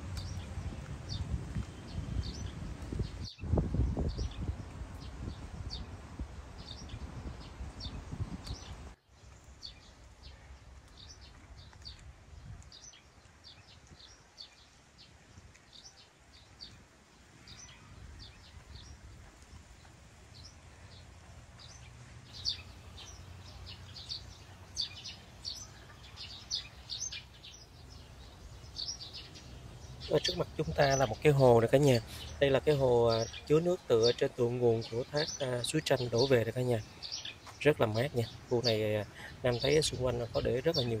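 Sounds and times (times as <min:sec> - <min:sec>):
birds chirping: 0:00.0 - 0:41.0.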